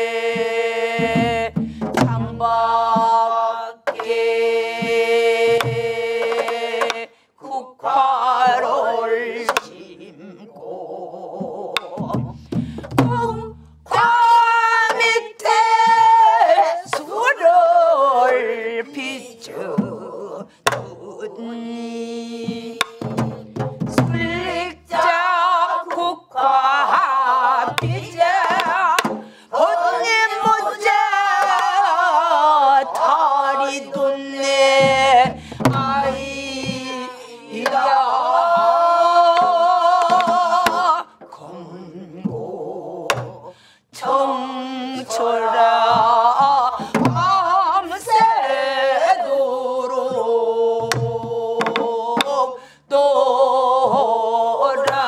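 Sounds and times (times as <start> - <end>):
group singing: 0.0 - 55.0
woman singing folk song: 0.0 - 55.0
barrel drum strokes: 1.0 - 3.2, 34.6 - 41.0.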